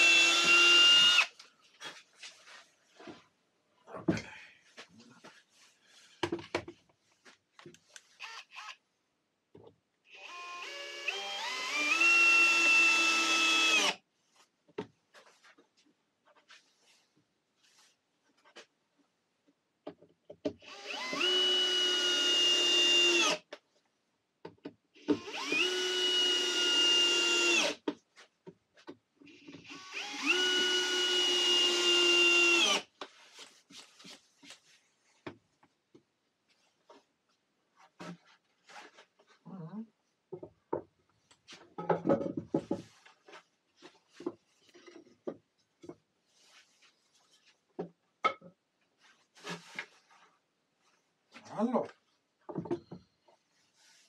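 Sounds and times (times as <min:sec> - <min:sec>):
power drill driving screws: 0:00.0 - 0:01.3, 0:08.2 - 0:08.8, 0:10.1 - 0:14.0, 0:20.6 - 0:23.4, 0:25.0 - 0:27.8, 0:29.6 - 0:32.9.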